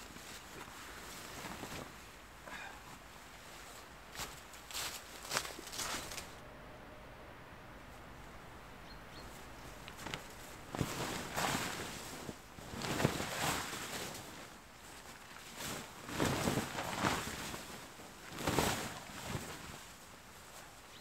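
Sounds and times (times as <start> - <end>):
fabric sheet flapping: 0.0 - 2.6, 9.6 - 20.6.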